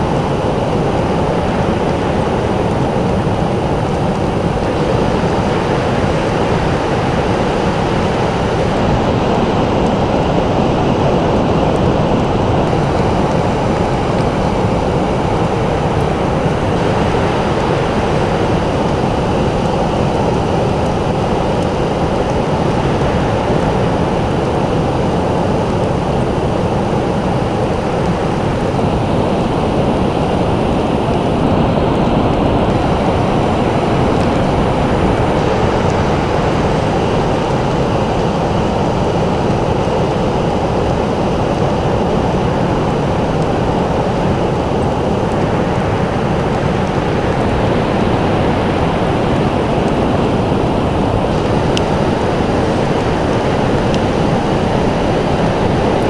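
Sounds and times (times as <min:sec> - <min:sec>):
ocean surf rushing: 0:00.0 - 0:56.0.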